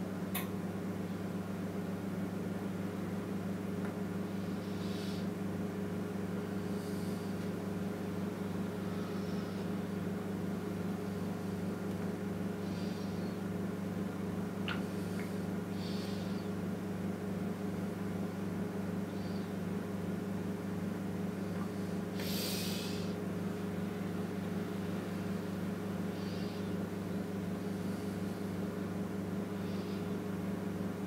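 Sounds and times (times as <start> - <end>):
low electrical hum: 0.0 - 31.0.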